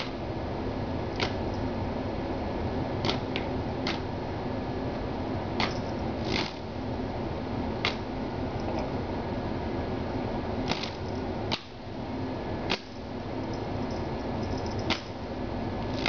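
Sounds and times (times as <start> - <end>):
electric fan whirring: 0.0 - 16.0
kitten pawing at fan clicks: 1.1 - 1.7, 3.0 - 4.1, 5.6 - 6.6, 7.8 - 8.9, 10.7 - 11.8, 12.6 - 15.2.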